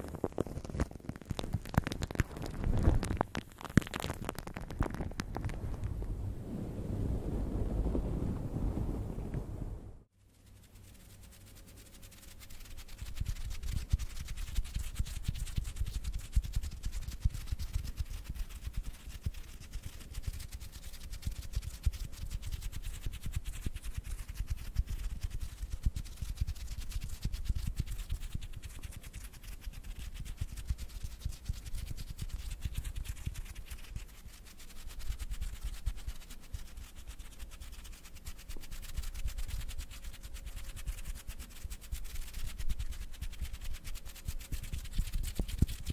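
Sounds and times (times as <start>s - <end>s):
hands rubbing together: 10.3s - 45.9s.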